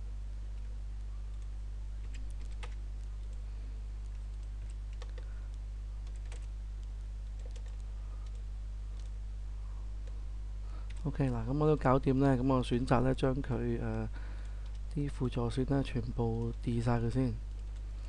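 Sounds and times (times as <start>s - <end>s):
low electrical hum: 0.0s - 18.0s
keyboard keystrokes: 1.4s - 3.3s, 6.0s - 6.5s, 7.3s - 8.4s.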